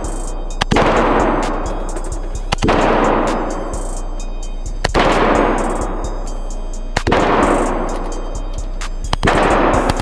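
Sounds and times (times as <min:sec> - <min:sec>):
handgun shots echoing: 0:00.6 - 0:01.7, 0:02.5 - 0:03.5, 0:04.8 - 0:05.9, 0:07.0 - 0:08.2, 0:09.1 - 0:10.0.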